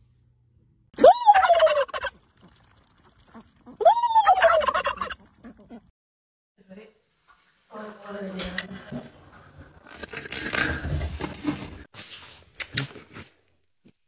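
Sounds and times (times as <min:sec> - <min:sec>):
turkeys gobbling: 0:01.4 - 0:02.1, 0:04.3 - 0:05.3.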